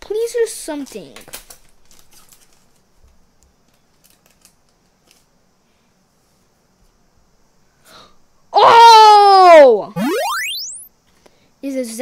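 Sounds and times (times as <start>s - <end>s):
foil pack crinkling: 1.5s - 2.8s.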